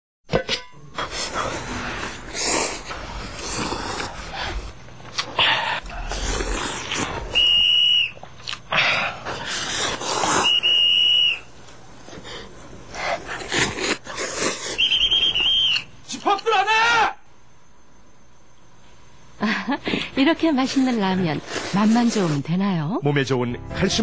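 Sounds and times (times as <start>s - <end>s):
noodles being slurped: 6.1s - 7.5s, 13.3s - 14.9s
high whistle-like tone: 7.3s - 8.2s, 10.3s - 11.5s, 14.8s - 15.9s.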